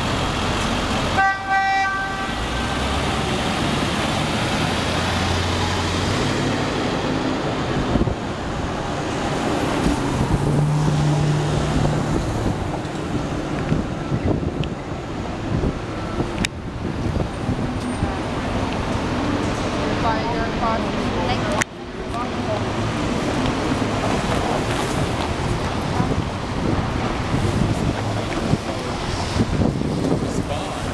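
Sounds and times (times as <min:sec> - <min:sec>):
vehicle engines running: 0:00.0 - 0:01.2, 0:02.0 - 0:30.9
tyres on the road: 0:00.0 - 0:30.9
car horn toot: 0:01.2 - 0:03.0.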